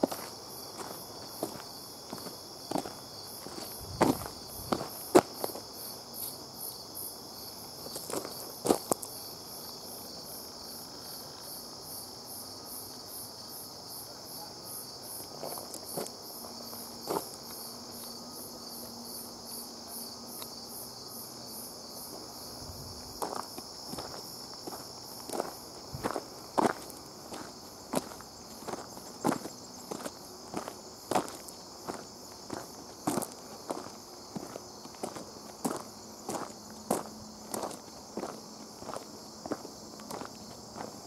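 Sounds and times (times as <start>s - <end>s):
footsteps crunching: 0.0s - 6.4s, 22.9s - 41.0s
insect chorus chirring: 0.0s - 41.0s
pulsing high insect call: 0.0s - 41.0s.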